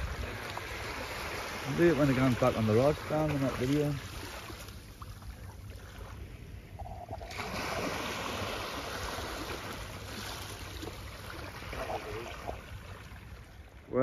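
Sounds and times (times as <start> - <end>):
small waves washing over rocks: 0.0 - 6.4, 7.3 - 13.6.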